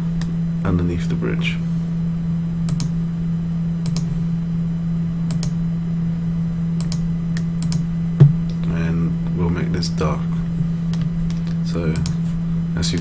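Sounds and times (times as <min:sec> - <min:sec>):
low electrical hum: 0:00.0 - 0:13.0
computer clicks: 0:02.7 - 0:03.0, 0:03.8 - 0:04.1, 0:05.3 - 0:05.6, 0:06.8 - 0:07.8.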